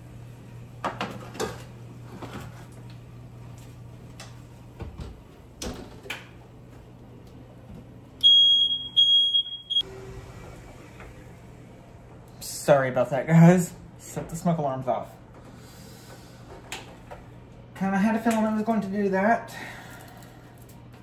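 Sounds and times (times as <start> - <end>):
smoke alarm beeping: 8.2 - 9.9.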